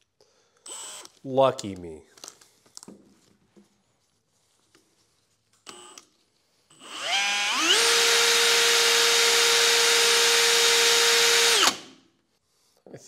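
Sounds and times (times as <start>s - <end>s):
power tool motor whine: 6.8s - 11.8s.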